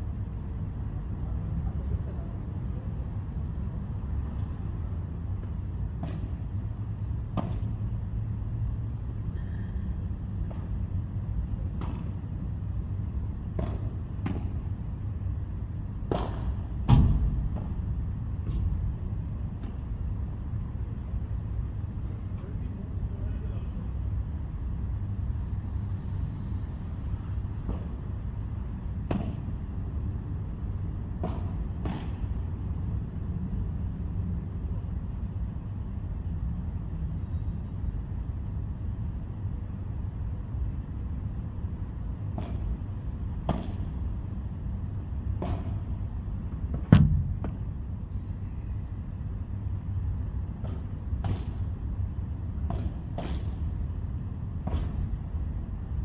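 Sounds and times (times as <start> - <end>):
ball hitting court: 6.0 - 6.3, 7.4 - 7.7, 11.8 - 12.2, 13.6 - 14.5, 16.1 - 17.7, 29.0 - 29.5, 31.2 - 32.3, 42.4 - 42.7, 43.5 - 43.8, 45.4 - 45.8, 46.7 - 47.7, 50.6 - 51.6, 52.6 - 53.6, 54.6 - 55.1
racket striking ball: 13.6 - 14.5, 16.1 - 17.7, 29.1 - 29.4, 31.2 - 32.2, 42.4 - 42.7, 43.5 - 43.8, 45.4 - 45.8, 46.7 - 47.7, 52.6 - 53.5
steady low rumble: 45.3 - 49.0.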